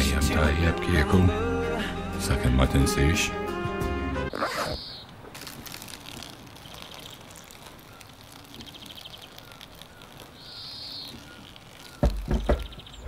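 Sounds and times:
small birds chirping: 4.3 - 5.2, 6.1 - 13.0
insect trilling: 4.3 - 13.0.

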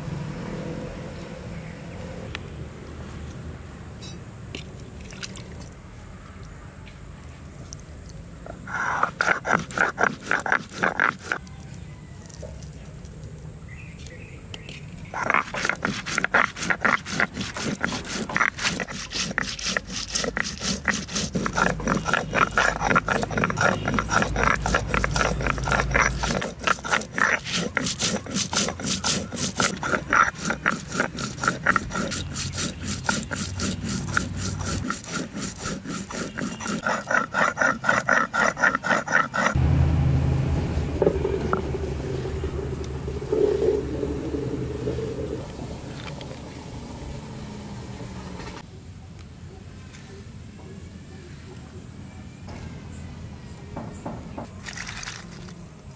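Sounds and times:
grinding stone scraping seeds: 8.4 - 13.2, 14.0 - 39.6, 41.0 - 46.5, 54.6 - 55.6.

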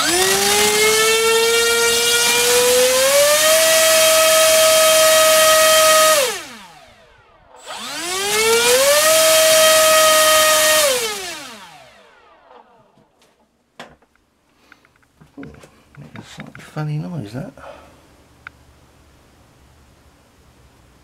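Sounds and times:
electric propeller motor whine: 0.0 - 13.0.

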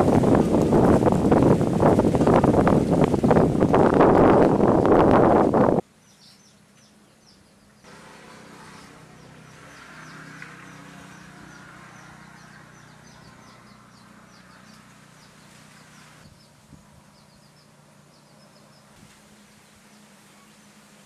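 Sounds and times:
wind gust on microphone: 0.0 - 5.8
soft outdoor background hum: 0.0 - 21.0
small birds chirping: 4.1 - 8.0, 8.6 - 20.8.

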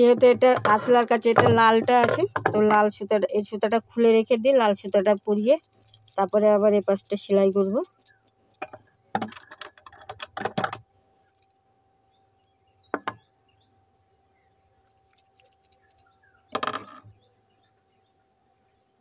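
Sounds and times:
small objects clinking and rattling: 4.4 - 11.6.

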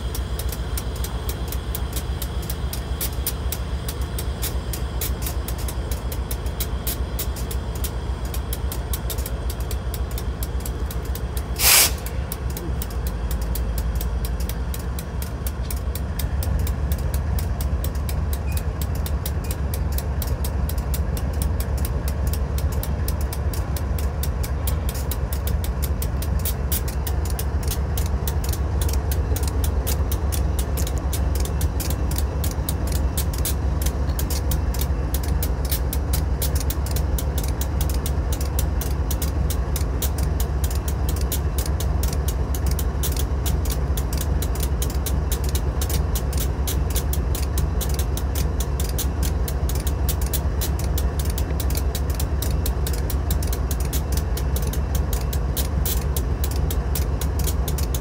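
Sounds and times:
diesel locomotive engine rumbling: 0.0 - 58.0
loud hiss: 11.5 - 12.3.

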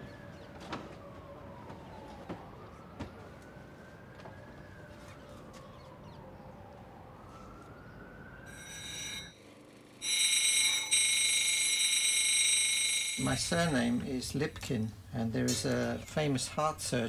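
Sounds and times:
faint siren: 0.0 - 14.1
grinding wheel whine: 8.5 - 14.2.

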